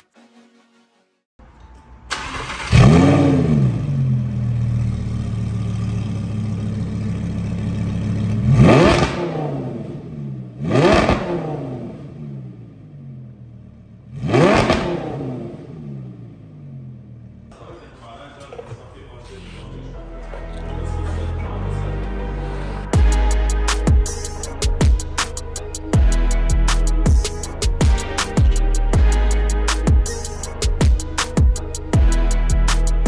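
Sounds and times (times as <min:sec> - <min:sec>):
car engine starting and idling: 0:02.1 - 0:29.4
engine revving: 0:02.2 - 0:17.4.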